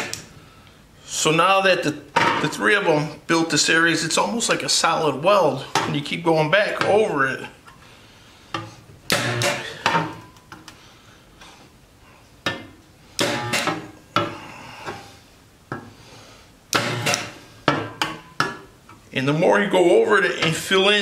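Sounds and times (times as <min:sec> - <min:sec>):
spot welder buzzing bursts: 0:09.1 - 0:09.8, 0:13.2 - 0:13.7, 0:16.7 - 0:17.5.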